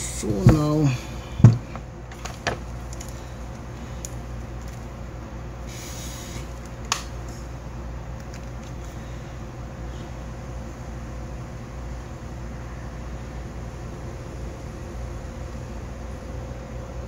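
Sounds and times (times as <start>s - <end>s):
cables rustling: 0.0s - 5.0s, 8.1s - 9.2s
steady low hum: 0.0s - 17.0s.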